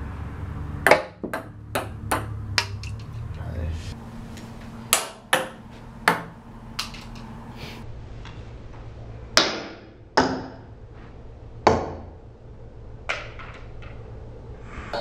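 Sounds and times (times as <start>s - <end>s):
ping-pong ball bouncing: 0.8s - 3.1s, 4.9s - 7.0s.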